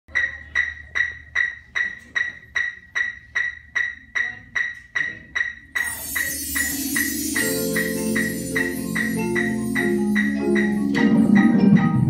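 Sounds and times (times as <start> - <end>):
electronic metronome beeps: 5.5 - 12.0
cymbal wash: 5.6 - 11.0.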